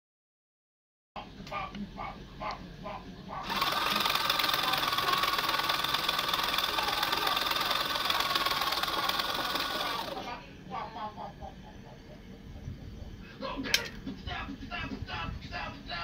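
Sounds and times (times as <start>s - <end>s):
electric screwdriver motor whining: 3.5s - 10.2s.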